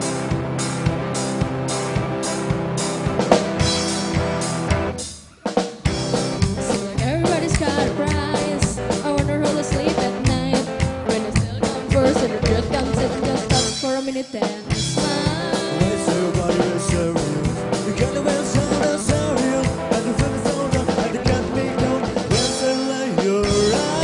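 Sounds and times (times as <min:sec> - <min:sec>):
upright double bass: 0:00.0 - 0:05.0, 0:05.9 - 0:13.8, 0:14.7 - 0:22.7, 0:23.4 - 0:24.0
drum kit: 0:00.0 - 0:24.0
electric guitar: 0:00.0 - 0:24.0
person singing: 0:06.2 - 0:24.0.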